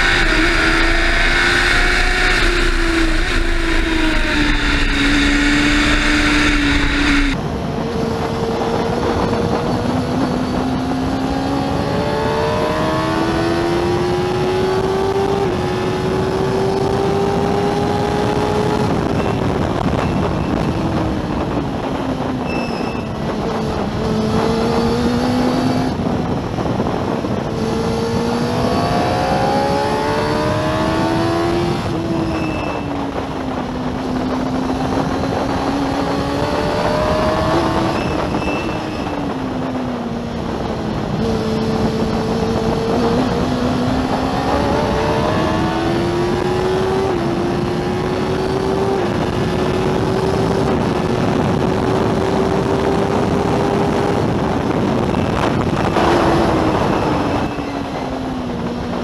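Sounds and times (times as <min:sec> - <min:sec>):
racing engine revving through gears: 0:00.0 - 0:21.6, 0:23.2 - 0:59.0
wind rushing over microphone: 0:00.0 - 0:59.0.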